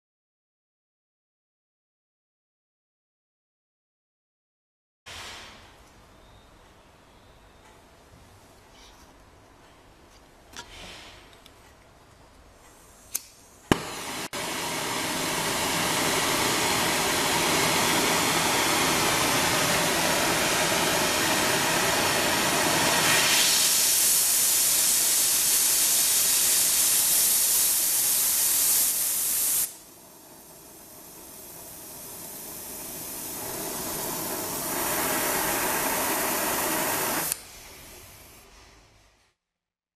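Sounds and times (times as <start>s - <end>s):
torch igniter clicks: 13.0s - 14.1s, 33.2s - 37.5s
torch flame hissing: 13.1s - 38.6s.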